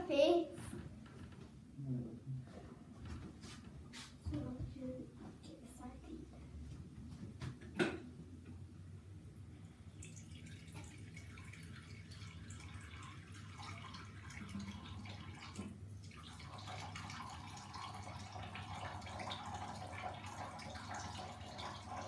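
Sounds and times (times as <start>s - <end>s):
tap water splashing in basin: 10.1s - 22.0s.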